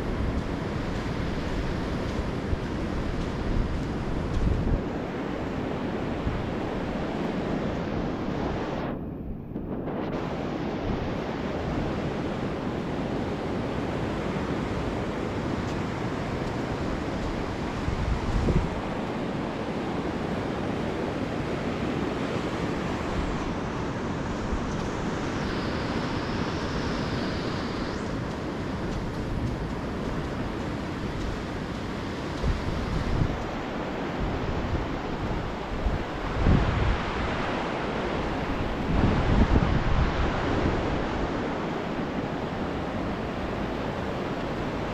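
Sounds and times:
wind buffeting microphone: 0.0s - 44.9s
surf washing onto beach: 9.8s - 44.9s.

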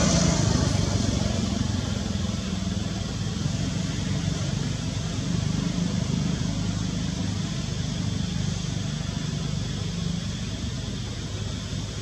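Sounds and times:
vehicle engine rumble: 0.0s - 12.0s.

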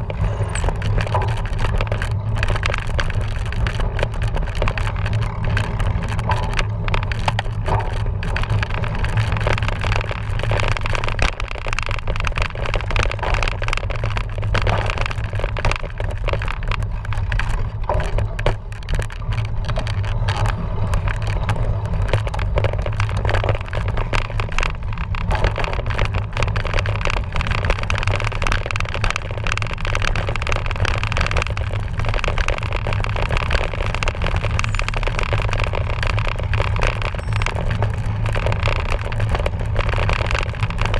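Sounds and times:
bike frame rattling: 0.0s - 40.9s
wind rumbling on microphone: 0.0s - 40.9s.

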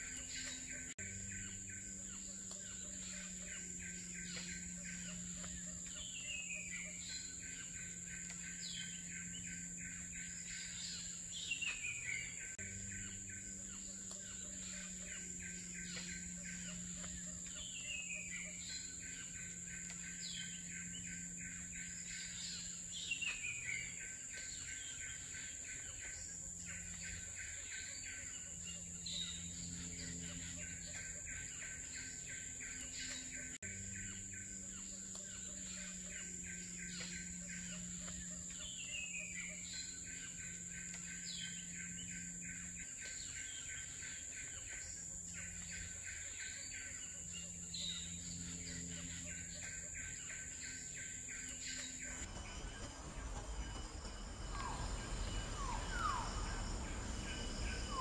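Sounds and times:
high-pitched insect drone: 0.0s - 58.0s
low steady hum: 0.0s - 58.0s.

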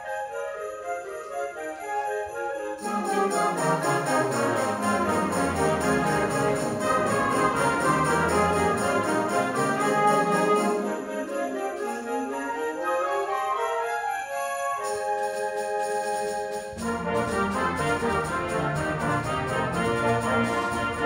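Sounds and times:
percussion beat: 2.8s - 12.1s, 14.8s - 21.0s
concert band playing: 2.9s - 11.2s.

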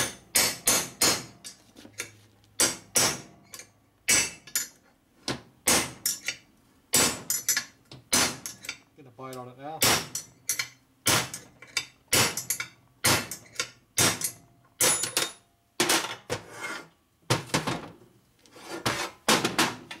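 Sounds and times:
hammer striking metal punch: 0.0s - 1.4s, 2.6s - 3.3s, 6.9s - 8.6s, 9.8s - 10.3s, 12.1s - 15.3s.

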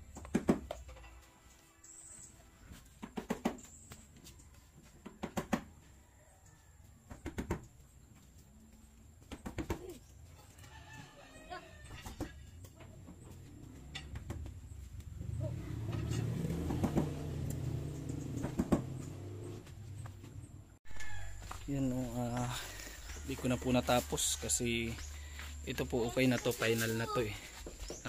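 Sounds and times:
sharp knocks on wood: 18.4s - 19.0s.

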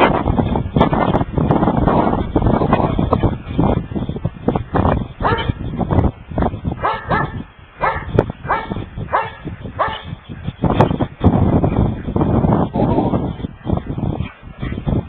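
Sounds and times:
dogs barking and yipping: 5.2s - 5.6s, 6.7s - 10.5s.

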